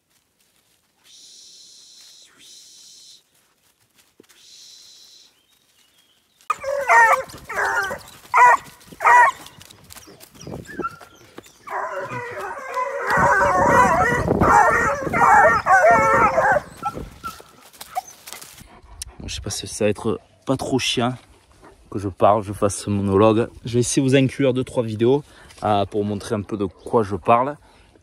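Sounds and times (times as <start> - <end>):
hounds baying and yelping: 6.5 - 18.7.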